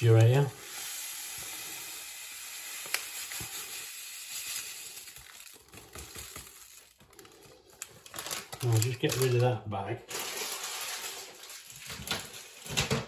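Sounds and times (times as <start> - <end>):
sugar pouring into mug: 0.0 - 7.4.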